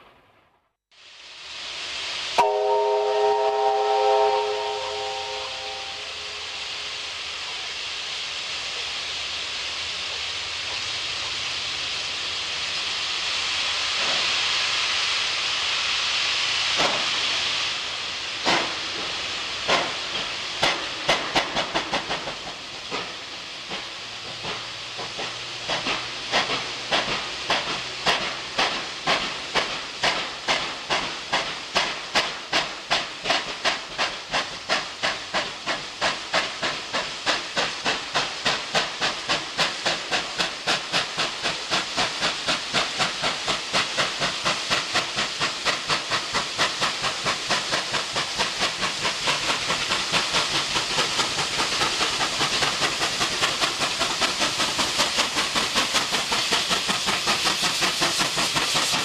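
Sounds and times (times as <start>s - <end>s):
steam hissing: 0.9s - 59.0s
steam locomotive exhaust chuffs: 1.0s - 59.0s.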